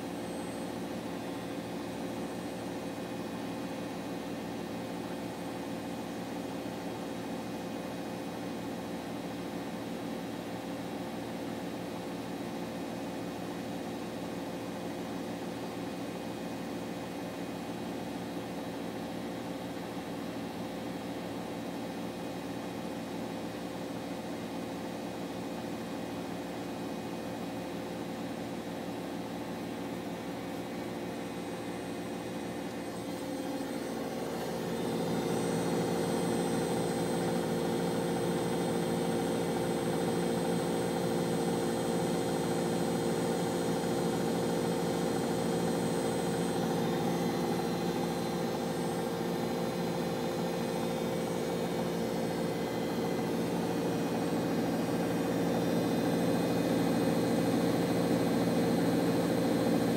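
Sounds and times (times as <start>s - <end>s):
washing machine spinning: 29.1s - 59.9s.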